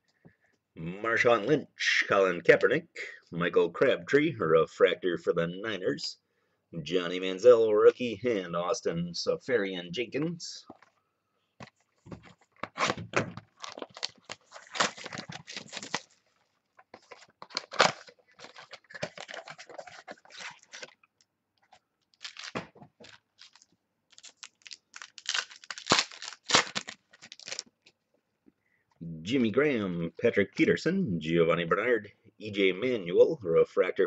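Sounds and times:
foil wrapper tearing and crinkling: 12.7 - 16.3, 17.0 - 21.0, 22.1 - 27.7.

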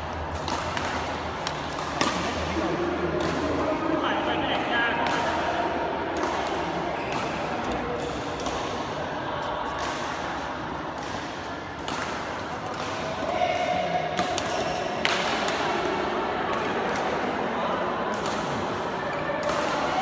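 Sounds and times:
murmur of voices: 0.0 - 20.0
racket hitting shuttlecock: 0.3 - 3.8, 4.4 - 17.3, 18.0 - 20.0.

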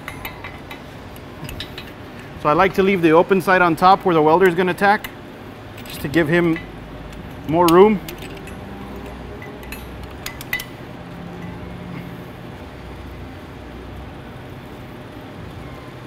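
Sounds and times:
low background hum: 0.0 - 16.0
metallic clinks of clamp: 5.8 - 10.8.

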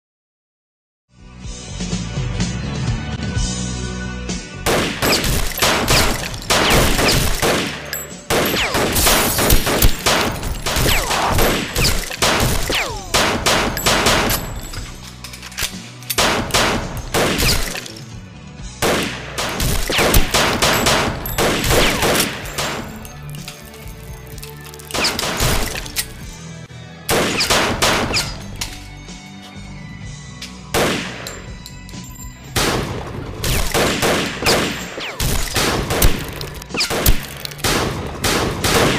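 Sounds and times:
action film music: 1.5 - 38.9
gunfire: 4.7 - 15.0, 15.6 - 18.0, 18.8 - 23.7, 24.9 - 26.2, 27.1 - 28.6, 30.7 - 31.5, 32.6 - 38.9.

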